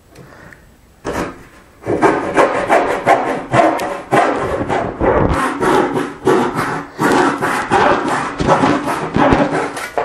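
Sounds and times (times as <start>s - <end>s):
hand saw cutting wood: 1.1s - 10.0s.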